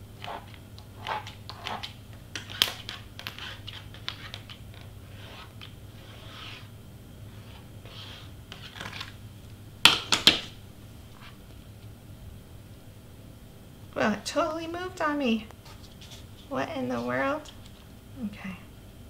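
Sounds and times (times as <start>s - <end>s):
paper rustling: 7.4s - 9.2s.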